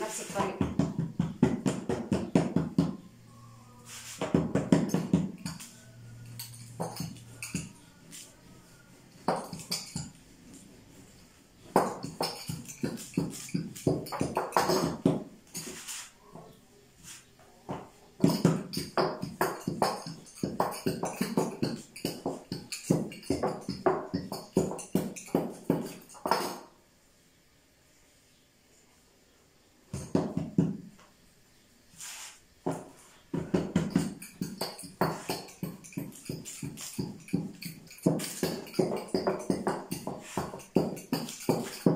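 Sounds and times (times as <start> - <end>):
rolling pin clattering on board: 11.7 - 15.8, 32.7 - 41.9.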